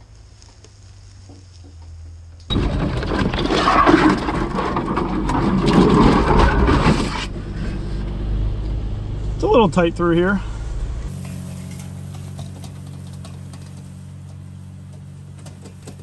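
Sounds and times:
rattles knocks and scraping: 2.5s - 8.8s
low engine drone: 4.8s - 16.0s.

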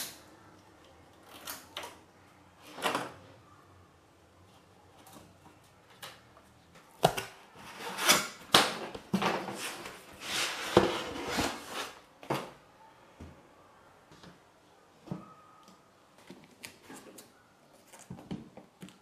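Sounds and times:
cardboard scraping over plastic lid: 9.3s - 12.0s.

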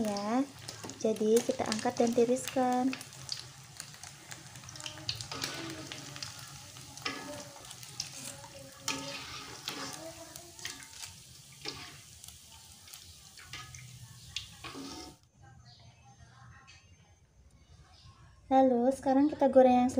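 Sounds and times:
fritters sizzling in hot oil: 0.0s - 15.2s
metal utensils scraping a pan: 5.1s - 12.3s, 12.9s - 15.2s.

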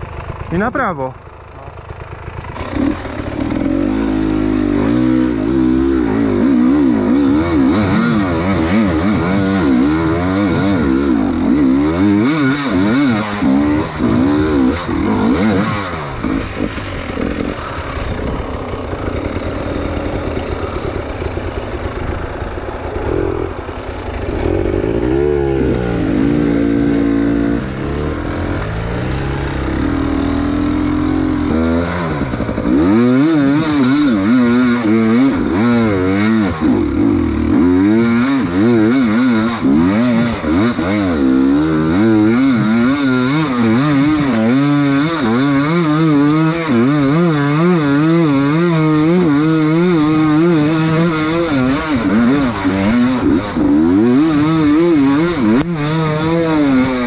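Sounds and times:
motorcycle engine revving: 0.0s - 57.0s
rattling clatter: 13.7s - 22.9s.

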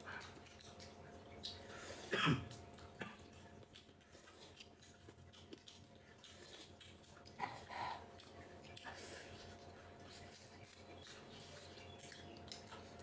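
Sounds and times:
eating clicks: 0.0s - 13.0s.

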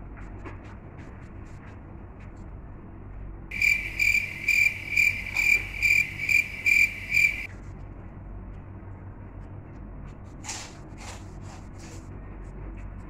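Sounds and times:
cricket chirps: 3.5s - 7.5s.

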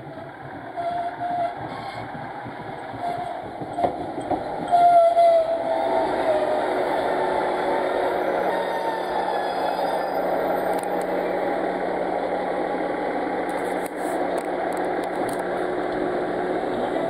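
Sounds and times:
diesel engine idling: 0.0s - 4.7s, 10.2s - 17.0s.

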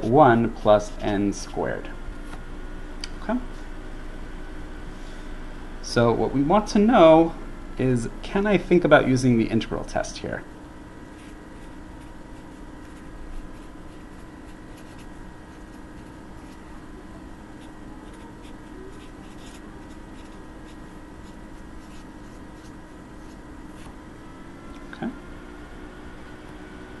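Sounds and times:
steady background hum: 0.0s - 27.0s
marker scratching on paper: 11.1s - 23.9s.

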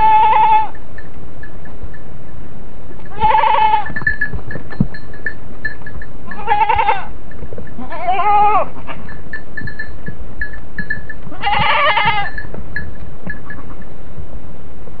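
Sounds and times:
goats bleating: 0.0s - 0.8s, 3.1s - 4.1s, 6.3s - 7.2s, 7.8s - 9.2s, 11.3s - 12.5s.

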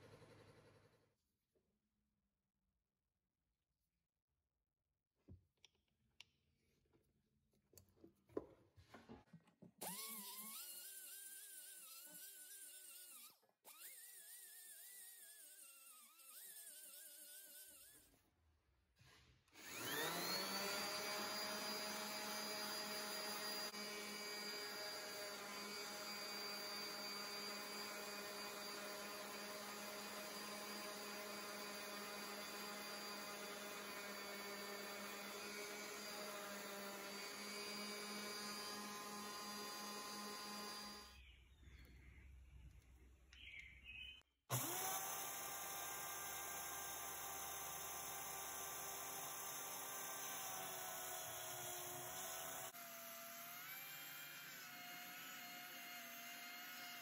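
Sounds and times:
die grinder whining: 9.8s - 18.2s, 19.5s - 41.2s, 44.5s - 57.0s
belt sander running: 19.6s - 41.2s, 44.5s - 57.0s.

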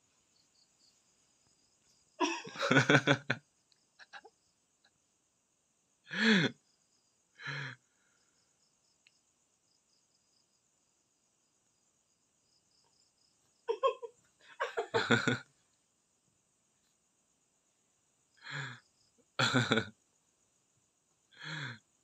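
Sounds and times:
crickets chirping: 0.0s - 22.0s.

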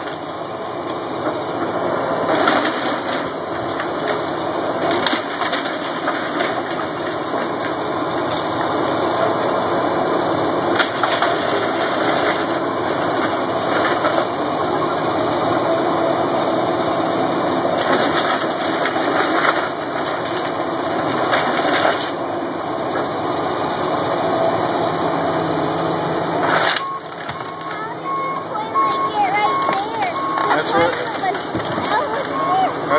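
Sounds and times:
excavator diesel engine running: 0.0s - 32.9s
wood splintering and crashing: 2.2s - 8.5s, 10.7s - 14.4s, 17.7s - 22.2s, 26.4s - 27.9s, 29.8s - 32.3s.

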